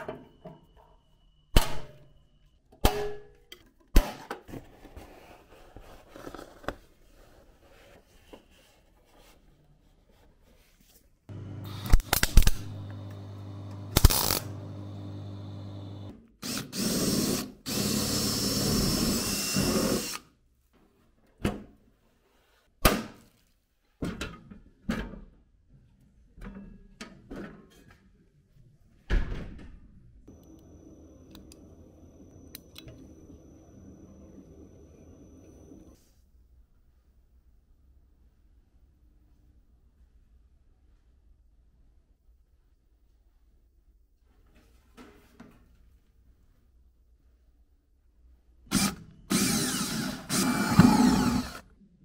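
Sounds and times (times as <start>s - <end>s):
electric drill running: 11.3s - 20.2s, 48.7s - 51.6s.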